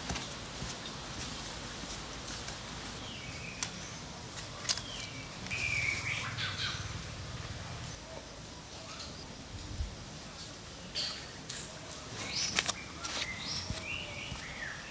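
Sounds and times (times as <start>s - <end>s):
birds chirping: 2.0s - 9.5s, 10.2s - 14.9s.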